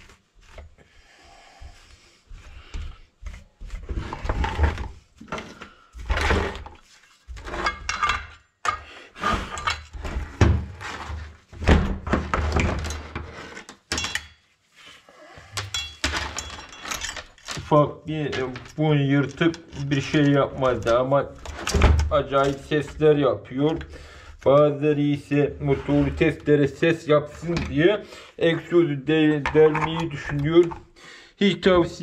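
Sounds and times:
metal parts clattering on workbench: 0:07.4 - 0:08.8, 0:12.4 - 0:14.4, 0:15.6 - 0:17.7, 0:29.4 - 0:30.6.

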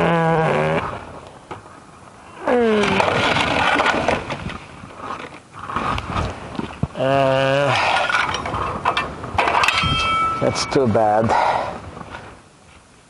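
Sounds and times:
man's wavering uhh: 0:00.0 - 0:01.0, 0:07.0 - 0:07.9
man breathing loudly: 0:11.2 - 0:11.9.

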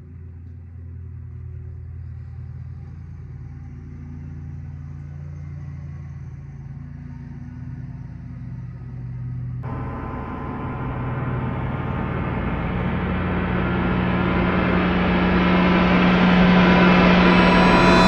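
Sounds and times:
gong-like hit: 0:09.6 - 0:18.0
low bass drone music: 0:09.6 - 0:18.0.

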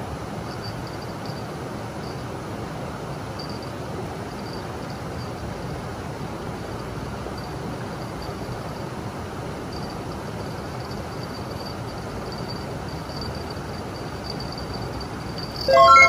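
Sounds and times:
insect trilling: 0:09.7 - 0:16.0.

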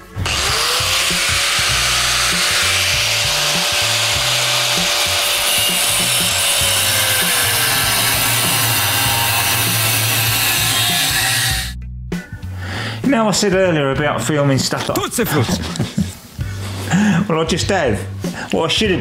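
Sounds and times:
angle grinder cutting steel: 0:00.1 - 0:11.8.

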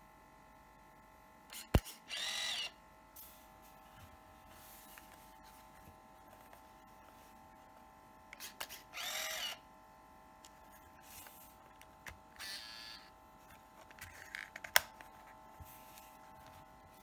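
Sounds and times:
camera motor whirring: 0:01.5 - 0:02.8, 0:08.4 - 0:09.6, 0:12.3 - 0:13.2.

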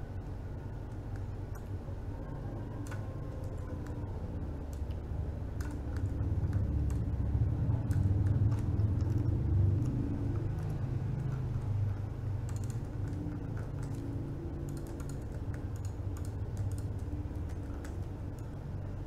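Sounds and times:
steady low hum: 0:00.0 - 0:19.0
keyboard and mouse clicks: 0:02.8 - 0:04.0, 0:05.6 - 0:11.7, 0:12.4 - 0:18.6.

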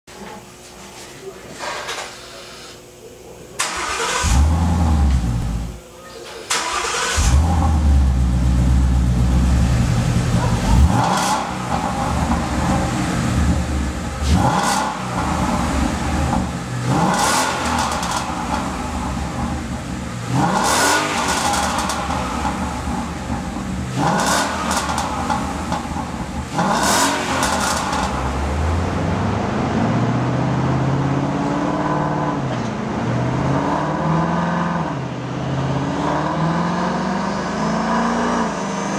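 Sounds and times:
car engine idling and revving: 0:03.8 - 0:05.8, 0:06.8 - 0:38.9
wheels spinning dyno rollers: 0:07.4 - 0:29.0.

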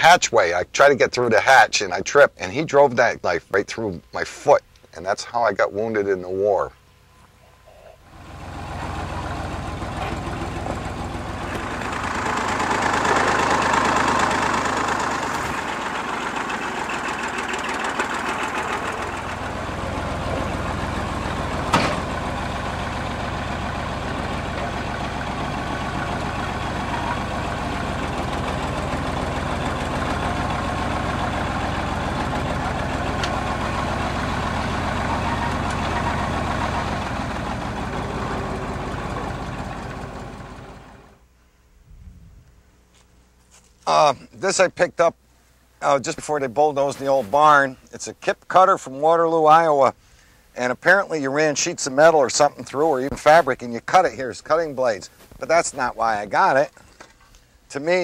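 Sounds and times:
engine idling: 0:06.8 - 0:41.3.

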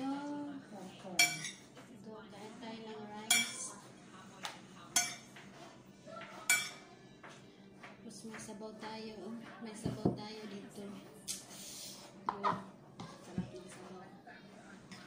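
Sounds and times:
metal spoon clinking on plate: 0:01.2 - 0:01.6, 0:03.3 - 0:03.6, 0:05.0 - 0:05.3, 0:06.5 - 0:06.8.

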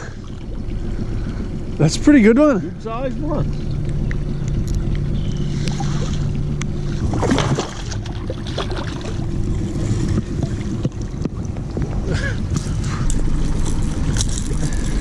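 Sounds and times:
steady low rumble: 0:00.0 - 0:15.0
fish splashing in water: 0:05.0 - 0:15.0.

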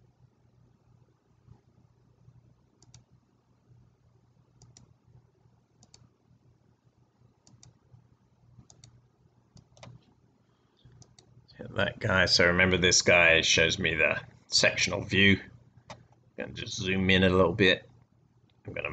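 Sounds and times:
computer mouse clicks: 0:02.8 - 0:03.1, 0:04.6 - 0:05.0, 0:05.8 - 0:06.1, 0:07.4 - 0:07.8, 0:08.6 - 0:10.2, 0:10.8 - 0:11.4, 0:15.8 - 0:16.2.

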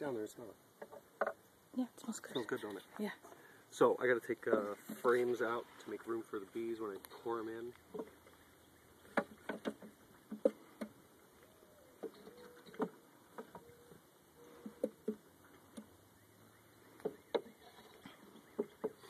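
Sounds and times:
wooden frames knocking: 0:04.4 - 0:05.4, 0:07.9 - 0:08.3, 0:09.0 - 0:11.0, 0:14.4 - 0:15.9, 0:16.9 - 0:17.6, 0:18.2 - 0:19.0.

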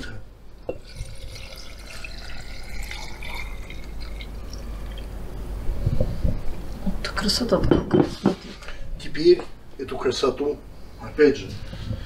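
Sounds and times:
liquid pouring into jar: 0:00.7 - 0:05.2.

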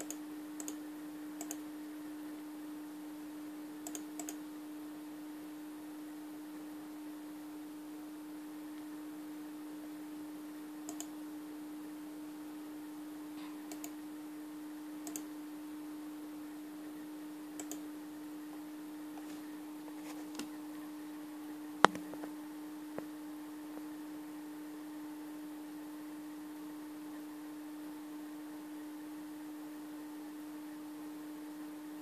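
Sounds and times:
computer mouse clicks: 0:00.0 - 0:00.8, 0:01.4 - 0:01.6, 0:03.8 - 0:04.4, 0:10.9 - 0:11.1, 0:13.7 - 0:14.0, 0:15.0 - 0:15.3, 0:17.6 - 0:17.9
steady low hum: 0:00.0 - 0:32.0.

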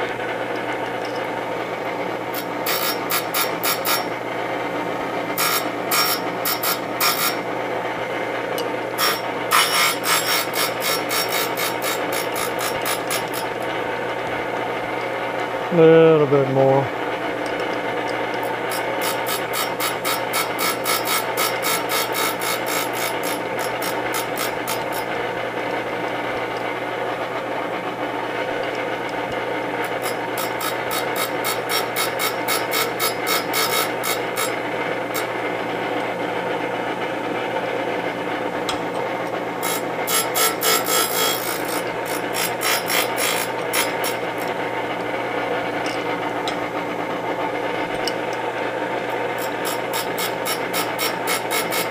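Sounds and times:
grinder motor hum: 0:00.0 - 0:51.9
grinding wheel rasping on metal: 0:02.3 - 0:04.1, 0:05.4 - 0:07.4, 0:09.0 - 0:13.8, 0:18.3 - 0:25.2, 0:29.8 - 0:35.4, 0:39.6 - 0:44.6, 0:49.3 - 0:51.9.

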